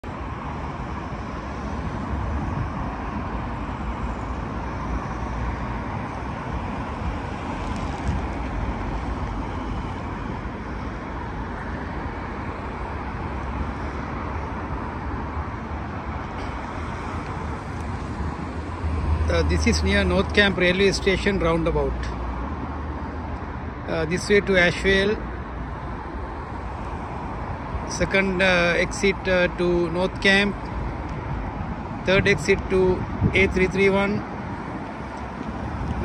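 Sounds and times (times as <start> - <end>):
road traffic: 0.0 - 36.0.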